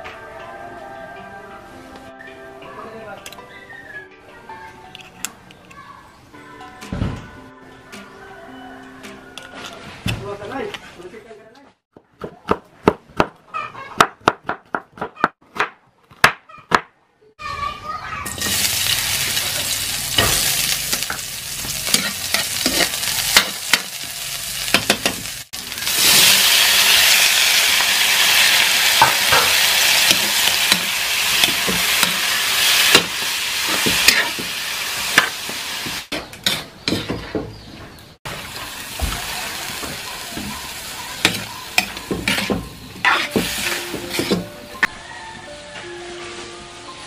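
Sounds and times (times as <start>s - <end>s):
onion frying in oil: 18.2s - 37.0s, 38.3s - 44.4s
metal spatula scraping a wok: 19.6s - 25.3s, 28.3s - 35.4s, 36.1s - 37.2s, 41.2s - 44.5s.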